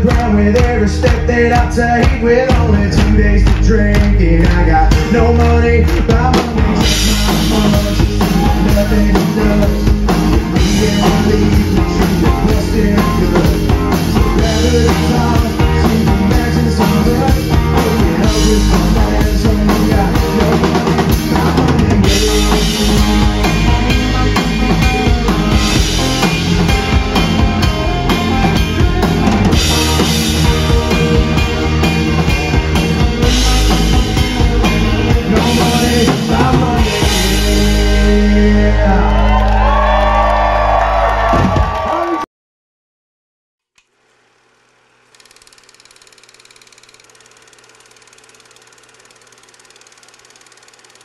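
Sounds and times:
drum kit beat: 0:00.0 - 0:38.9
acoustic and electric guitars: 0:00.0 - 0:41.3.

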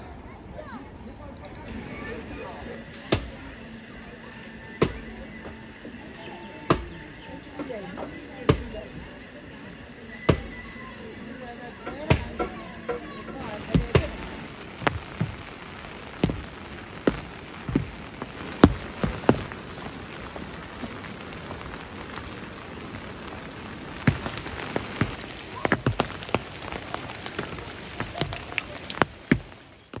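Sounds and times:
raindrops tapping a hard surface: 0:11.9 - 0:30.0
steady rain falling: 0:13.3 - 0:30.0.

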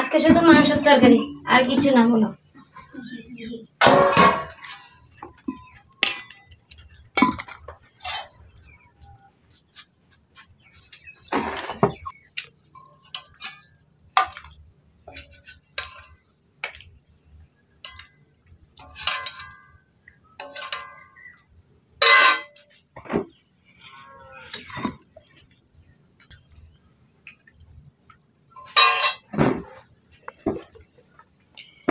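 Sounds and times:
metal spoon clinking on pan: 0:28.6 - 0:29.3.

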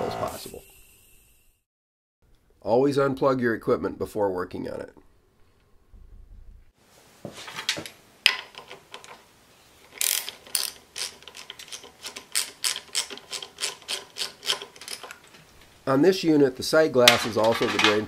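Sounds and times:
ratchet wrench clicking: 0:09.9 - 0:15.2.

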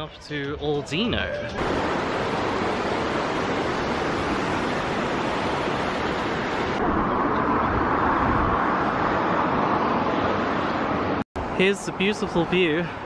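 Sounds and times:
river rushing over rocks: 0:01.6 - 0:11.0.

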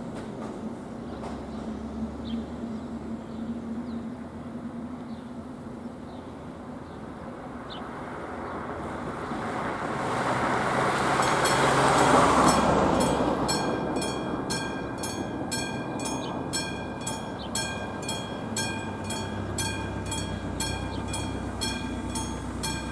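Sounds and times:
road traffic hum: 0:00.0 - 0:22.9
car driving over crossing: 0:08.7 - 0:22.9.

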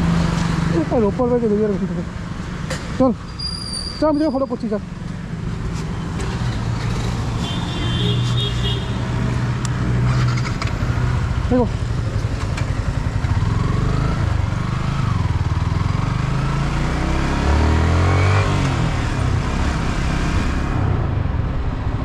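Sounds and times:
wind and road noise: 0:00.0 - 0:22.0
motorcycle engine running: 0:10.2 - 0:16.4.

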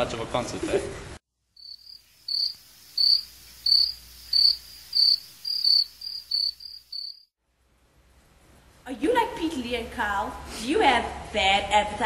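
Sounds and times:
crickets chirping: 0:01.6 - 0:07.3.

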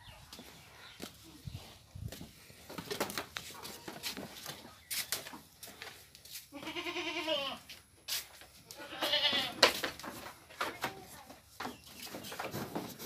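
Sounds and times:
goats bleating: 0:06.5 - 0:07.7, 0:08.7 - 0:09.6.

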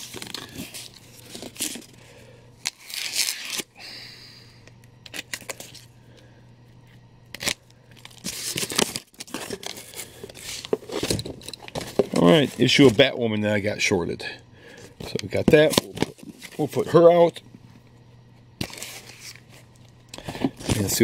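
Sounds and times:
cardboard and paper rustling: 0:00.0 - 0:02.0, 0:08.0 - 0:13.1, 0:15.0 - 0:16.9, 0:18.6 - 0:21.0.

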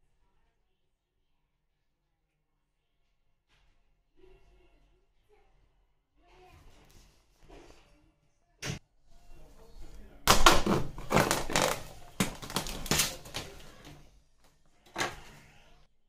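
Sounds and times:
plastic film crinkling: 0:10.3 - 0:13.9.

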